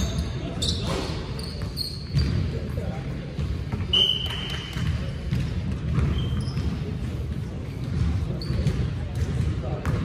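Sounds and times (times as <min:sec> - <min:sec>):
shoe squeaks: 0:00.0 - 0:02.7, 0:03.8 - 0:04.9, 0:05.9 - 0:06.9, 0:08.3 - 0:08.9
basketball bouncing echoing: 0:00.0 - 0:10.0.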